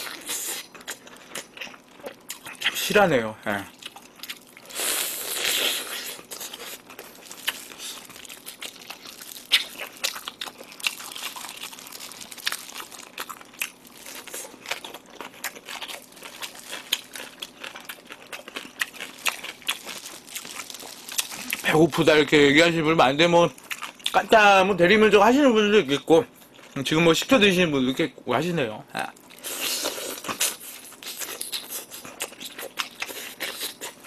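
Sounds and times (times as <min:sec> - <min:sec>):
biting and chewing: 0:03.7 - 0:21.8
plastic gloves crinkling: 0:06.2 - 0:22.8.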